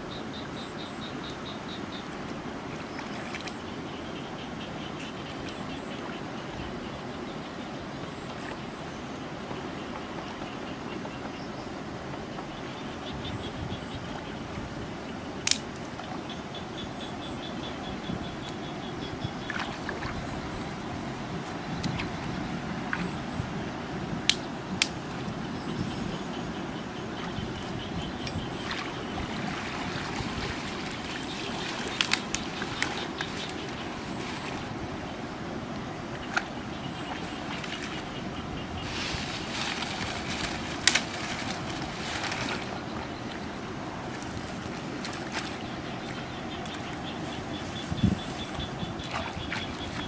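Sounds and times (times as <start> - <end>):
muddy water sloshing and splashing: 19.3 - 23.2, 27.2 - 35.2, 36.0 - 50.0
wet weeds splashing: 28.6 - 34.7, 38.8 - 43.4.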